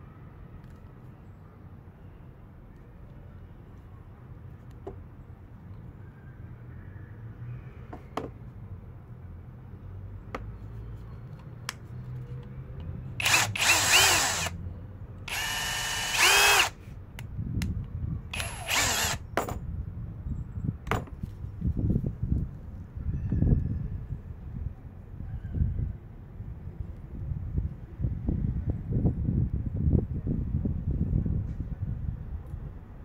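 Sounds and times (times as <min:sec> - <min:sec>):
impact wrench motor whine: 0:13.2 - 0:14.6, 0:15.3 - 0:16.8, 0:18.3 - 0:19.2.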